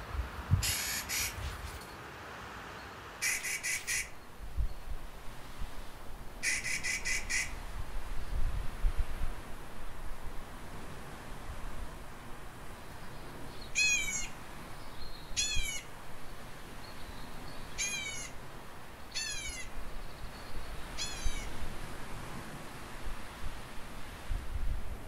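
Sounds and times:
wind rumbling: 0.0 - 1.8
bird calling: 0.6 - 1.5, 3.2 - 4.2, 6.4 - 7.6, 13.6 - 15.9, 16.6 - 18.4, 19.0 - 21.6.

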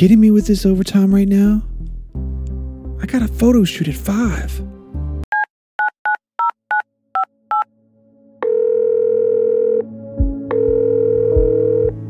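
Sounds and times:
touch-tone keypad beeps: 5.3 - 7.7
telephone ringing tone: 8.4 - 9.9, 10.5 - 12.0.

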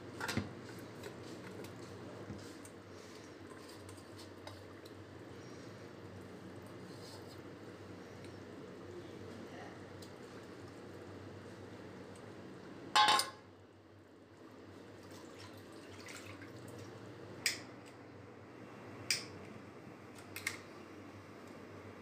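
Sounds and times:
steel bowl clanking on pot: 13.0 - 13.4.

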